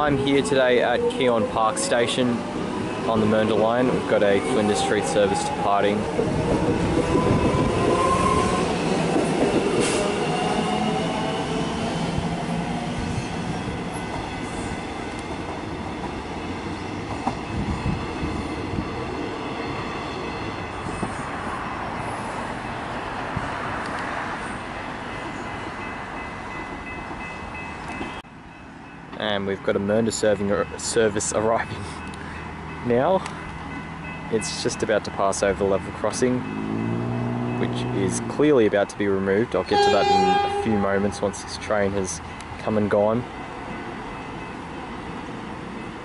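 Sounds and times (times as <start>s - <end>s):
level-crossing bells ringing: 39.4s - 41.2s.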